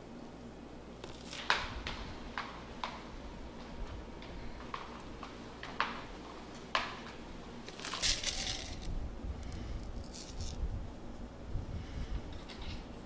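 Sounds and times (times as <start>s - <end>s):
crinkly rustling: 7.6s - 8.9s.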